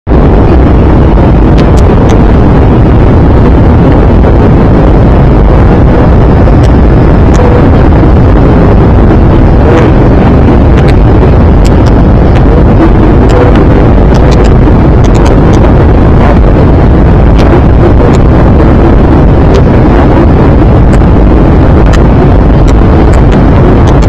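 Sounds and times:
airplane cabin roar: 0.0 - 24.0.

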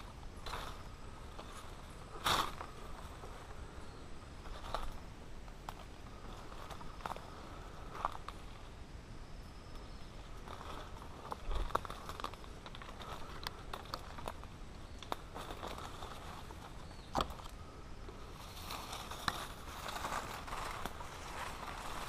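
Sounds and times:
undergrowth brushing: 0.0 - 8.8, 9.6 - 22.0
footsteps in dry leaves: 10.2 - 17.1, 18.2 - 22.0
twigs snapping: 10.4 - 16.2.

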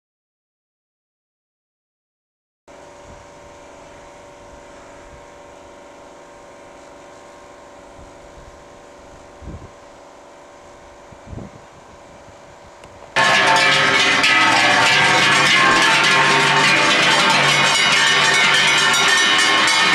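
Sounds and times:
outdoor background hum and hiss: 2.7 - 19.9
wind buffeting microphone: 7.9 - 9.9, 10.9 - 13.2.

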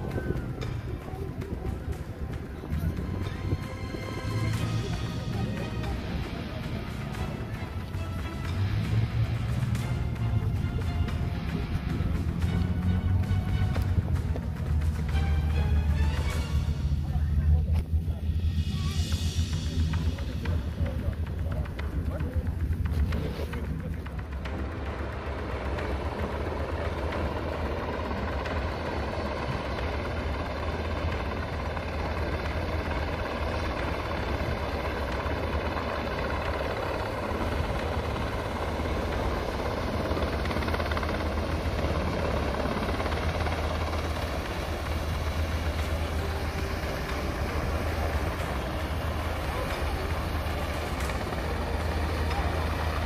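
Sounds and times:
helicopters flying low: 0.0 - 53.0.

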